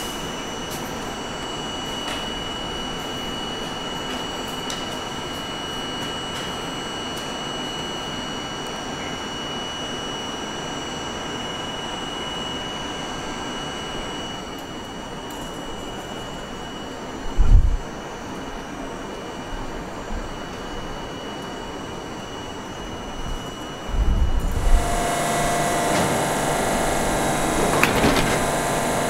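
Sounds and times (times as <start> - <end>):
subway car equipment hum and hiss: 0.0 - 29.0
high unchanging whine: 19.9 - 29.0.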